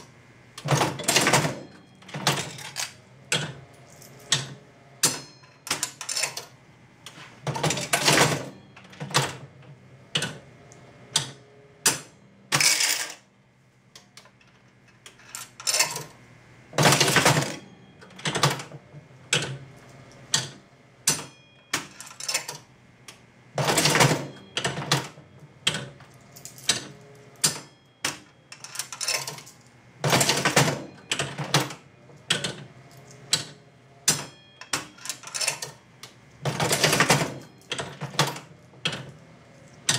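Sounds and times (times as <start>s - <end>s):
slot machine clattering: 0.0s - 6.6s, 7.5s - 10.5s, 11.1s - 13.3s, 14.4s - 16.2s, 16.8s - 22.7s, 23.5s - 39.9s
slot machine clicks and clunks: 0.0s - 13.3s, 14.1s - 39.9s.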